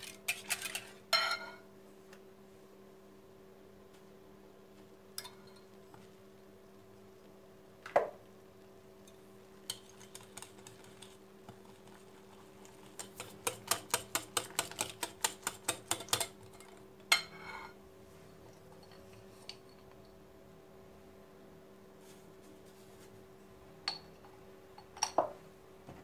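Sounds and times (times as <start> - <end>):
whisk clicking against glass bowl: 12.8 - 16.4.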